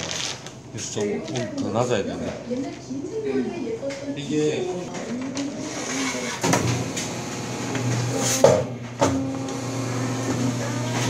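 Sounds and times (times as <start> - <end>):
press machine motor hum: 5.6 - 11.0.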